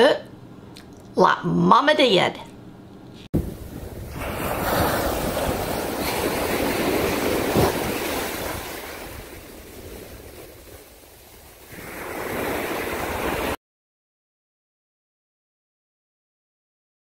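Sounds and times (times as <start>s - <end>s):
ocean surf breaking: 3.4s - 13.6s.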